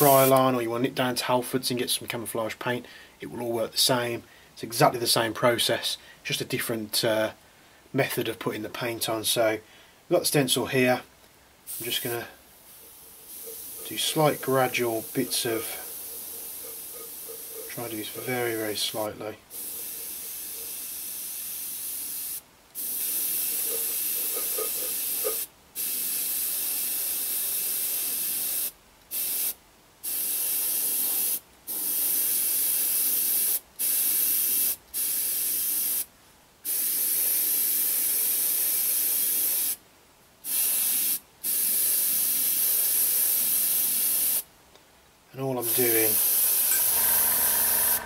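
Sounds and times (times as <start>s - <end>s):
airbrush air hiss: 11.7s - 18.6s, 19.5s - 36.1s, 40.5s - 44.5s, 45.6s - 48.0s.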